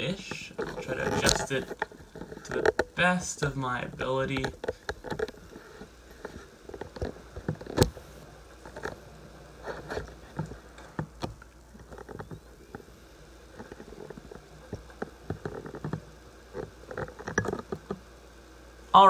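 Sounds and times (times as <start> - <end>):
handling clicks and knocks: 0.2 - 3.0, 3.8 - 8.0, 9.8 - 12.9, 13.5 - 18.0.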